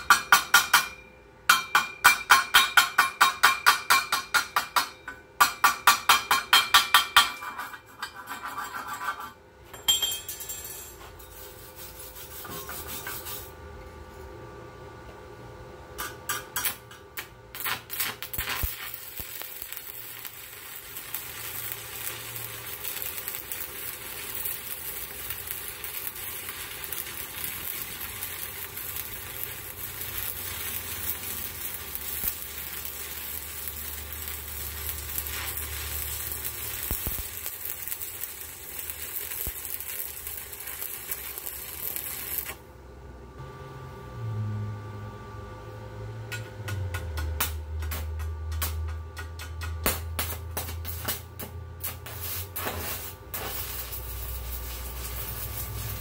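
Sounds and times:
welding arc crackling: 16.6 - 42.6, 49.4 - 56.0.

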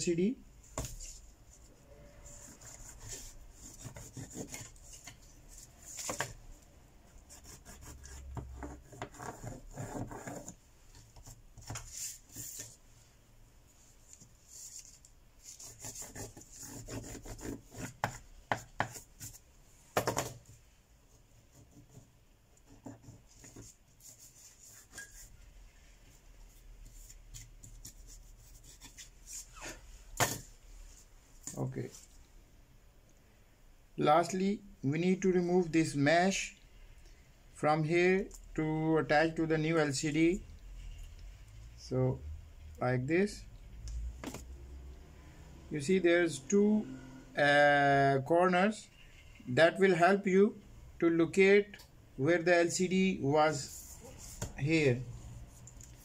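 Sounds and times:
tissue rubbing on phone frame: 11.3 - 18.0, 23.0 - 30.1.

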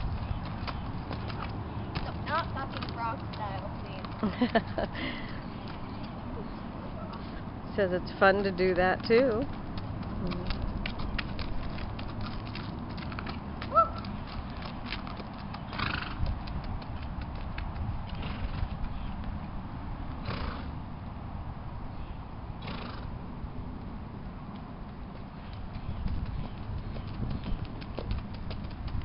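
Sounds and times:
horse hooves on gravel: 0.0 - 21.2, 23.4 - 29.0.

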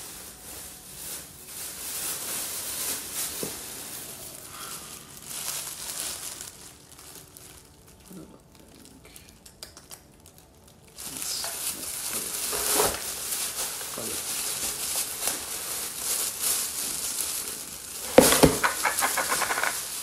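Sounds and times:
bag rustling: 11.5 - 20.0
knocks on plastic pot: 18.1 - 19.7.

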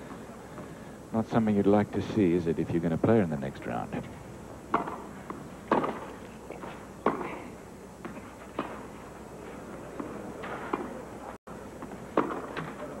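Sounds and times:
tennis ball struck by rackets: 4.7 - 7.4, 10.0 - 11.0, 11.8 - 12.8.

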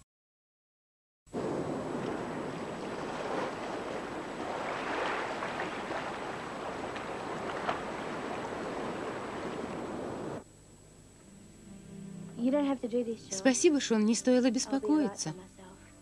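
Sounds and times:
sea surf washing over rocks: 1.4 - 10.4.

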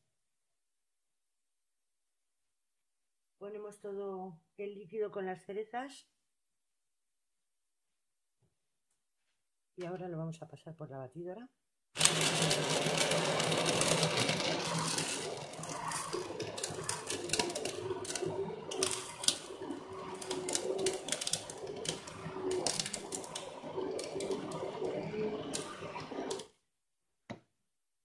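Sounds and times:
stick blender running: 12.0 - 26.5.

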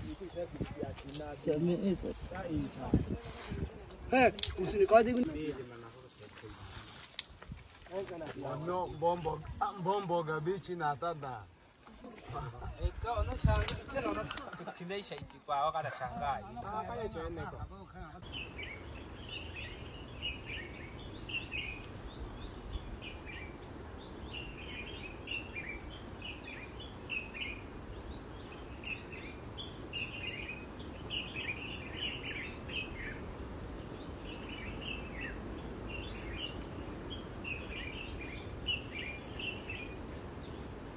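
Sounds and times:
birds chirping: 0.0 - 5.8, 18.2 - 40.8
high-pitched insect drone: 18.2 - 40.9.

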